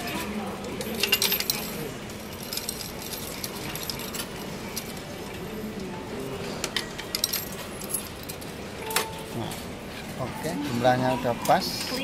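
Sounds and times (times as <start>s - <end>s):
coin clinks: 0.0s - 5.2s, 6.7s - 9.4s.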